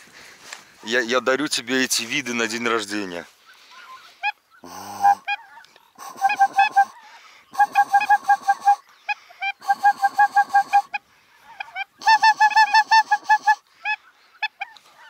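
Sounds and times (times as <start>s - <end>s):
goose honking: 3.7s - 15.0s.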